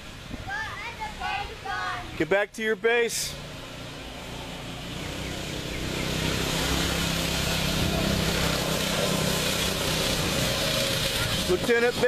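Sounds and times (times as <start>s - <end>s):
motor engine running: 4.2s - 12.0s.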